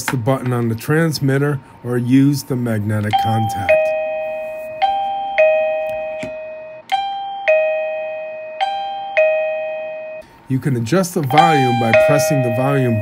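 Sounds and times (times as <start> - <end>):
doorbell two-note chime: 3.2 - 10.2, 11.3 - 13.0.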